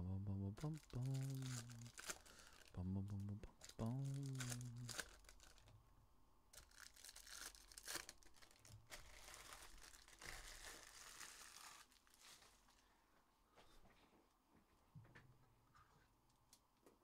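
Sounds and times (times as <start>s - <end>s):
foil wrappers crinkling and tearing: 0.6s - 2.8s, 3.5s - 5.7s, 6.6s - 12.9s.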